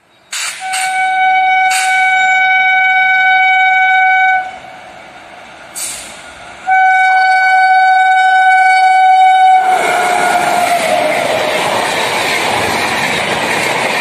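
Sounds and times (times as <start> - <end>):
train arriving rushing noise: 0.0 - 2.5, 4.4 - 6.9, 9.0 - 14.0
locomotive air horn blasts: 0.3 - 4.6, 5.8 - 11.1.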